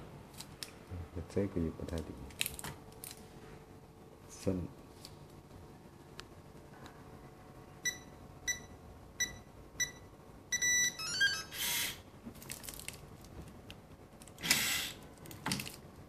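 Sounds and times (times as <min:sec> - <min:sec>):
keypad beeping: 0:07.8 - 0:11.6
lock mechanical noise: 0:14.2 - 0:15.9.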